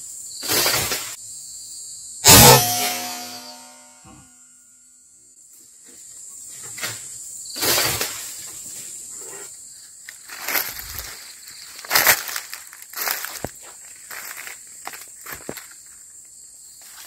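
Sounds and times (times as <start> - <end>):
footsteps in dry leaves: 10.2 - 15.8.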